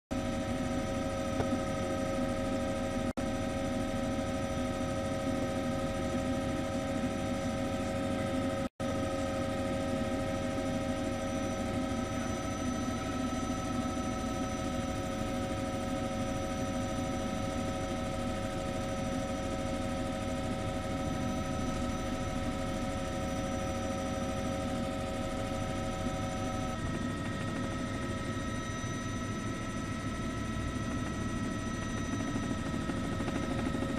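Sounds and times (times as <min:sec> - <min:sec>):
mechanical drone with whining tones: 0:00.1 - 0:33.9.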